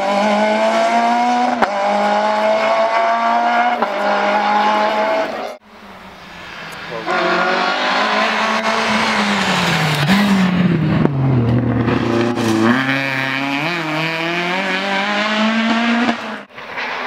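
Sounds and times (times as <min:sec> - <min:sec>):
rally car engine revving: 0:00.0 - 0:05.6, 0:06.7 - 0:17.0.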